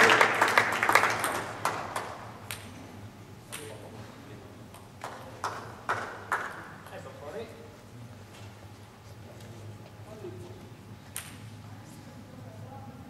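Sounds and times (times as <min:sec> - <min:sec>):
applause: 0:00.0 - 0:02.2, 0:05.0 - 0:06.7.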